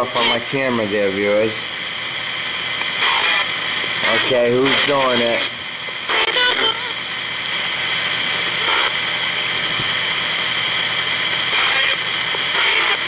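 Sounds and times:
radio static hiss: 0:00.0 - 0:13.0
voice-like radio snatches: 0:02.8 - 0:09.3, 0:11.2 - 0:13.0.

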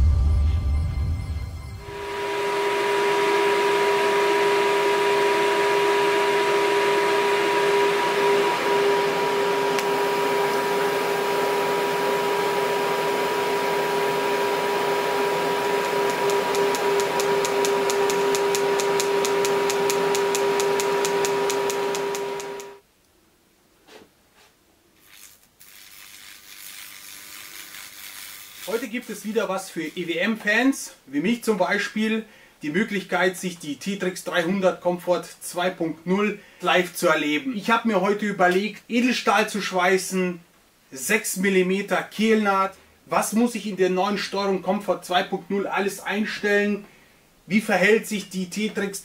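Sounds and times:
welding arc hissing and humming: 0:15.7 - 0:22.8, 0:25.0 - 0:30.1.

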